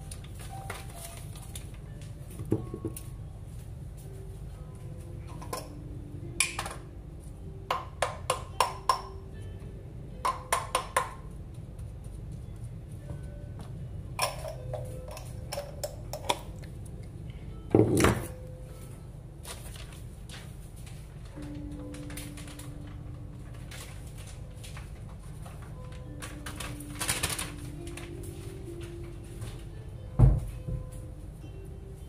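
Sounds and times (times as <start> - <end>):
utensils clinking on pan and jar: 14.2 - 16.5.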